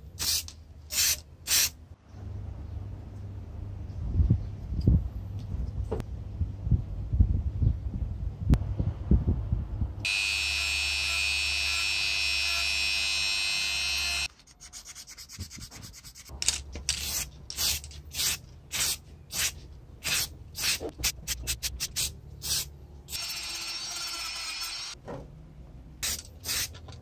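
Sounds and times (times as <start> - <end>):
rotary tool whining: 10.1 - 14.3, 23.1 - 25.0.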